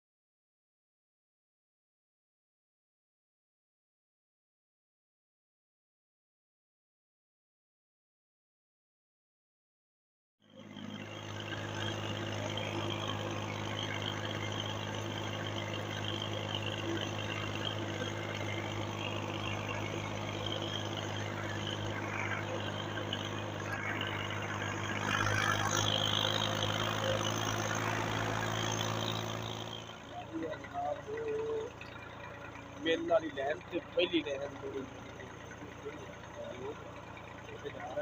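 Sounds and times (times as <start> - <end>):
tractor diesel engine running: 10.5 - 38.0.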